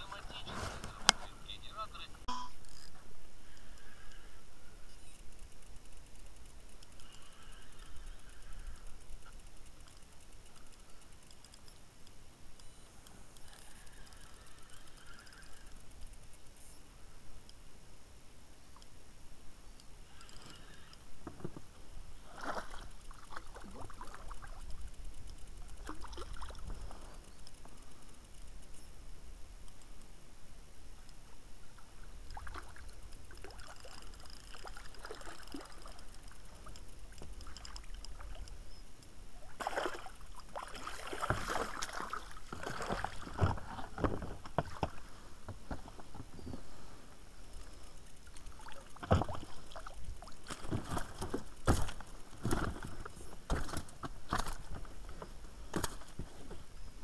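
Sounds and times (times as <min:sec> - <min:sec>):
water splashing and dripping: 0:39.4 - 0:43.6.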